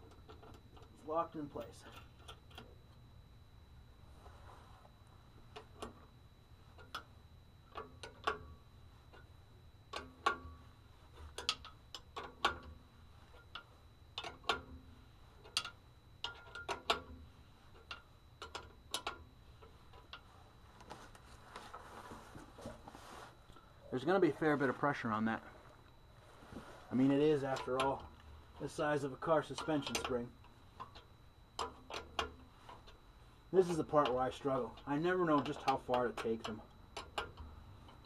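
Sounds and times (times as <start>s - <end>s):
metallic clicks and clinks: 15.4s - 17.2s, 27.0s - 33.0s.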